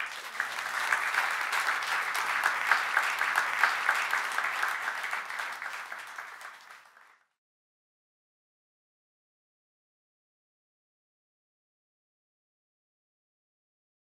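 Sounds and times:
audience applause: 0.0 - 7.3.

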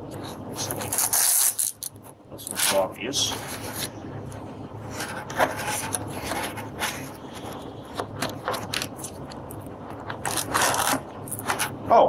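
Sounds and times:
cardboard and plastic scraping: 0.2 - 1.7, 4.9 - 9.3, 9.9 - 11.8.

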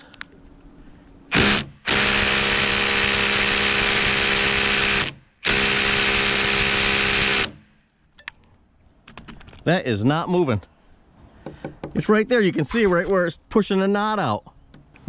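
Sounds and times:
impact driver hammering: 1.3 - 7.6.

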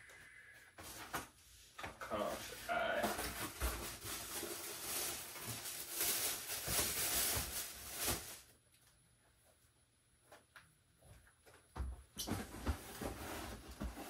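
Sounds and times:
paper and cardboard rustling: 0.8 - 8.5, 12.3 - 14.0.

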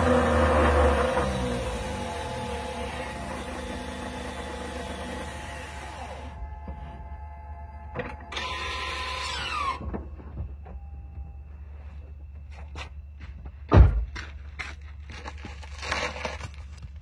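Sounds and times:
grinding whine rising in pitch: 0.0 - 12.2
steady low hum: 0.0 - 15.4
loud thump: 13.7 - 14.2.

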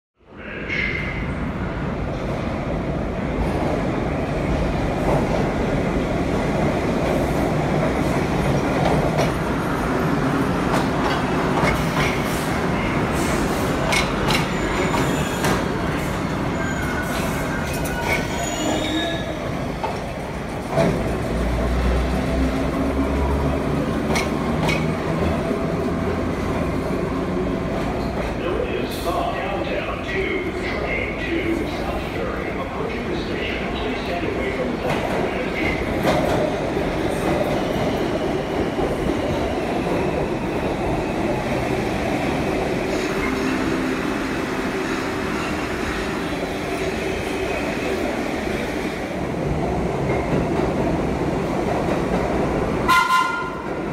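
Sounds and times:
rumble of train wheels on rail: 0.3 - 53.9
high wheel squeal: 16.5 - 19.4.

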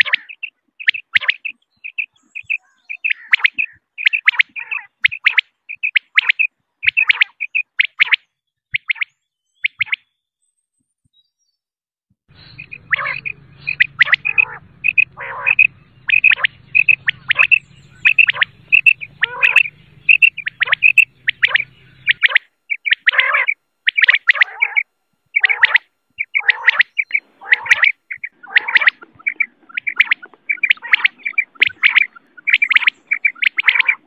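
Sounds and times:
quail calls dropping in pitch: 0.0 - 9.1, 12.3 - 34.0
quail chirping: 0.0 - 10.0, 12.3 - 34.0
faint low hum: 12.3 - 34.0.

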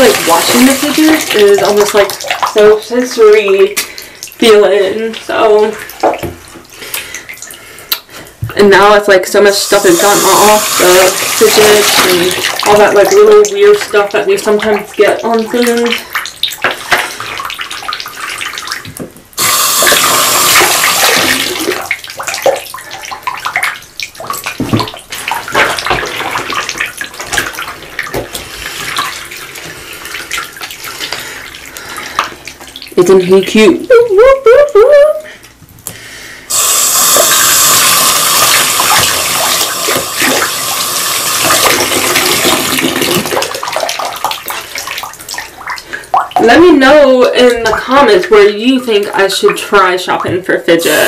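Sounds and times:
water sloshing in bathtub: 0.0 - 51.0
rush of running water: 36.5 - 43.9.

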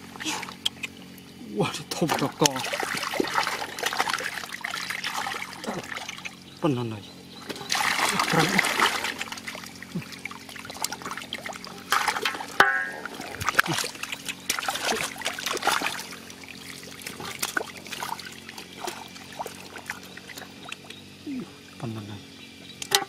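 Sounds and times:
water trickling: 0.0 - 23.0
fish thrashing in water: 1.8 - 6.6, 7.4 - 21.2
hands splashing in water: 2.0 - 6.4, 7.5 - 20.9.

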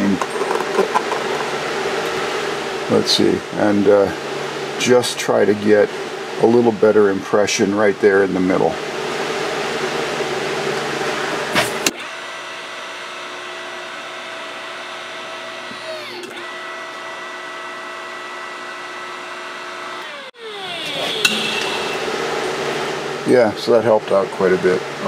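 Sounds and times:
hydraulic pump motor humming: 9.0 - 23.3.

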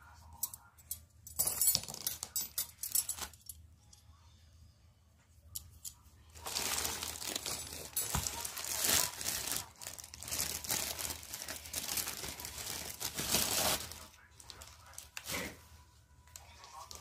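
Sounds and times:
plastic bag rustling: 6.4 - 15.7.

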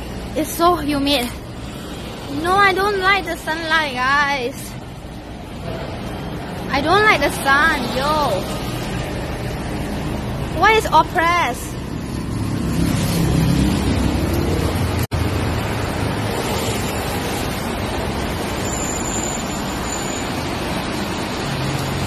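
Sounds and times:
road traffic: 0.0 - 22.0
vehicle engine rumble: 11.3 - 22.0.

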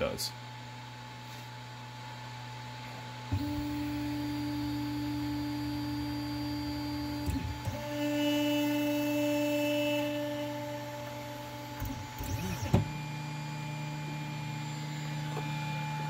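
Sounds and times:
stepper motors whining: 3.3 - 16.0.

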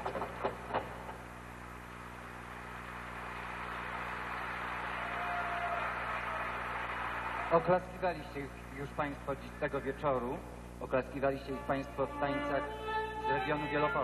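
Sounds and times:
sharp knocks: 0.0 - 1.2
audience applauding: 2.4 - 7.8.

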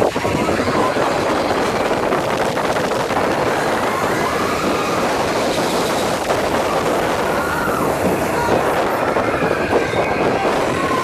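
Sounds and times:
faint rider voices: 0.0 - 11.0
roller coaster wheel rumble: 0.0 - 11.0
wind over microphone: 0.0 - 11.0.

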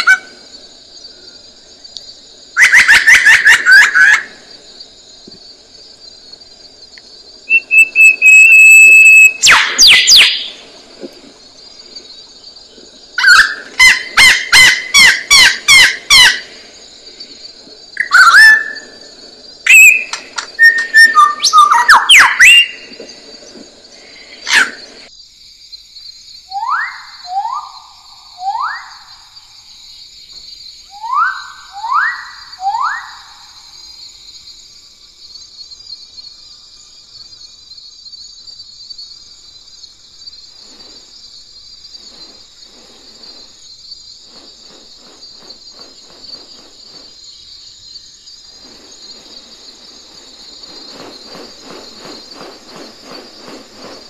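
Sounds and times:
steady high hiss: 0.0 - 54.0
bird falling whistles: 7.5 - 10.5, 18.0 - 18.9, 19.7 - 22.9.

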